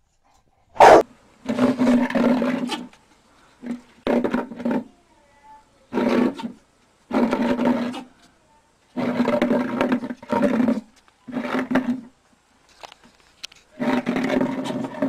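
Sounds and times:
animal growling: 0.7s - 1.0s.

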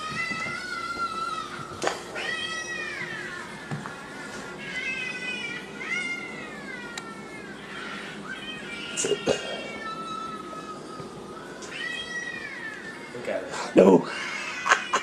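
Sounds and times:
cat meowing: 2.2s - 3.6s, 4.6s - 11.0s, 11.6s - 13.2s.

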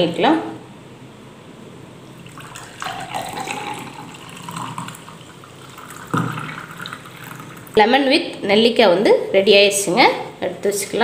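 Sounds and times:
juice pouring through strainer: 2.2s - 7.8s.

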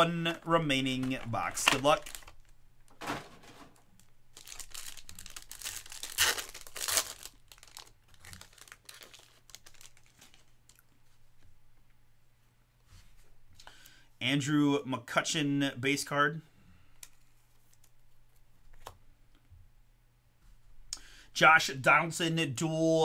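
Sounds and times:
foil wrapper tearing and crinkling: 1.6s - 2.5s, 4.3s - 10.8s.

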